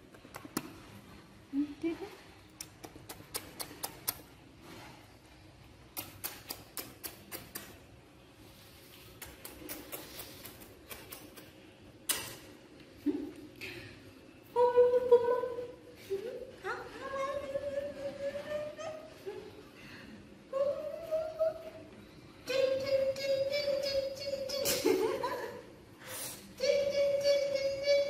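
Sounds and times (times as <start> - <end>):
person making kissing sounds: 0.0 - 0.9, 2.5 - 4.4, 5.8 - 8.0, 9.0 - 12.5.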